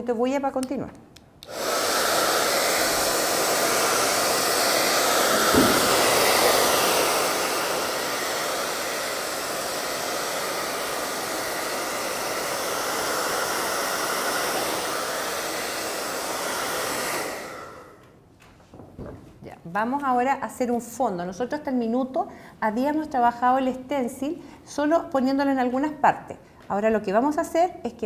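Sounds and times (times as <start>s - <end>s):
hair dryer blowing: 1.4s - 18.1s.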